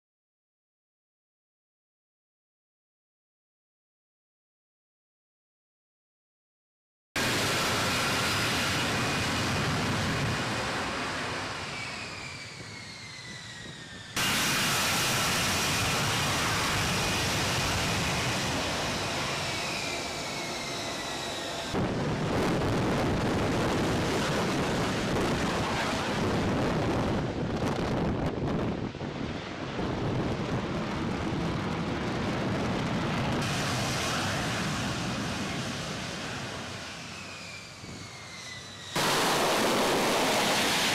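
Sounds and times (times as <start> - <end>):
high turbine whine: 7.2 - 40.9
loud jet engine rush: 7.2 - 40.9.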